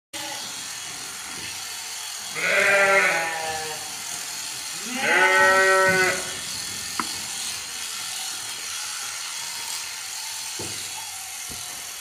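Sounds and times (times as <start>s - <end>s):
electric shearing handpiece buzz: 0.2s - 12.0s
sheep bleating: 2.3s - 4.0s, 4.8s - 6.4s.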